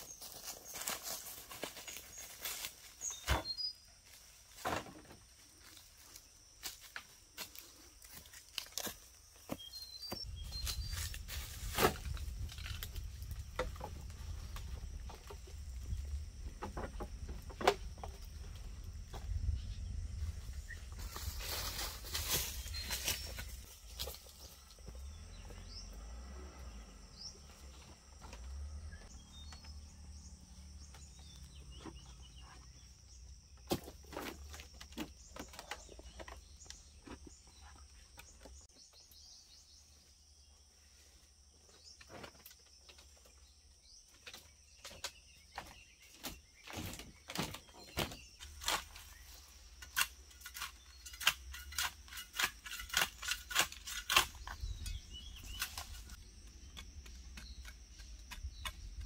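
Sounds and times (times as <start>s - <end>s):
hoe striking soil: 49.8s - 59.0s.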